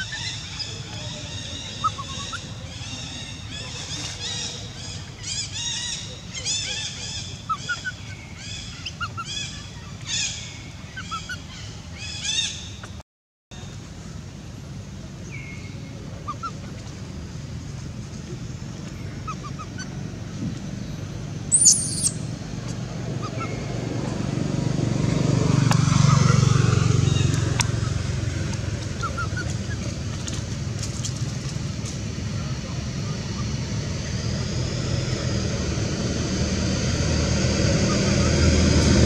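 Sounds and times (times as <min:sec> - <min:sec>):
high-pitched animal calls: 0:21.5 - 0:22.2.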